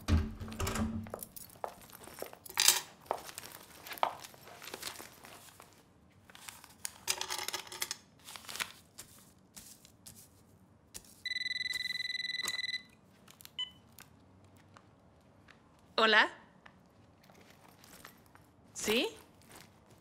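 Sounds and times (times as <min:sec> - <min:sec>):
electronic buzzing ring: 0:11.3 - 0:12.9
rustling and light clicks: 0:16.6 - 0:20.0.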